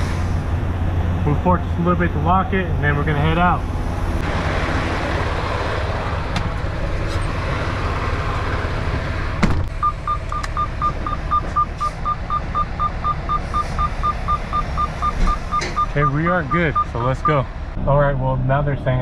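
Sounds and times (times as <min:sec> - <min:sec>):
truck diesel engine idling: 0:00.0 - 0:17.8
warning beeper beeping: 0:09.8 - 0:17.5.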